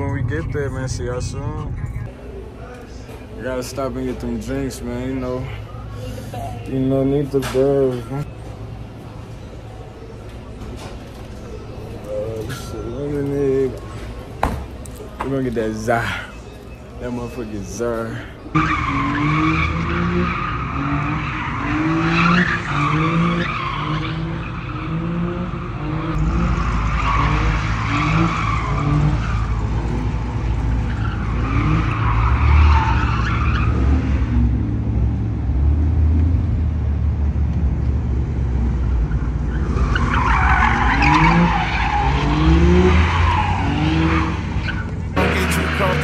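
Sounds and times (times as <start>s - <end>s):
engines revving hard: 18.7s - 36.6s, 39.1s - 46.0s
tyres screeching: 39.5s - 46.0s.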